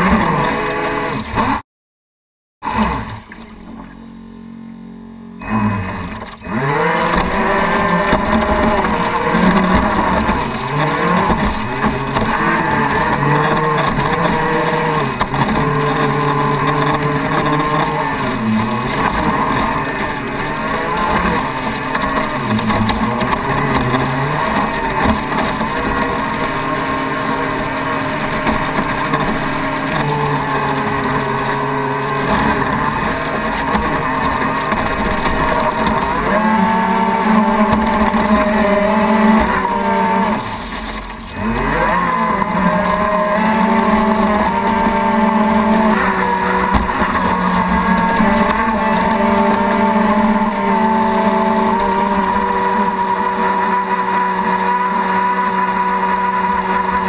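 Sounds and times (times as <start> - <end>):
water rushing along hull: 0.0 - 1.6, 2.6 - 57.0
electric motors whining: 2.6 - 57.0.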